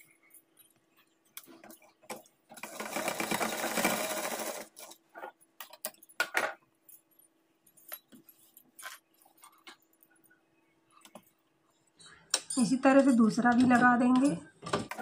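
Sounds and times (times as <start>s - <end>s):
sewing machine running: 2.6s - 4.8s.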